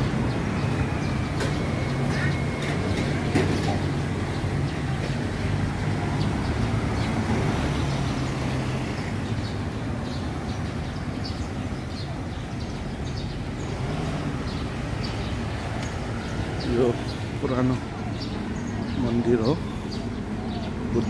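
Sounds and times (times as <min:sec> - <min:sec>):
passing traffic: 0:00.0 - 0:21.0.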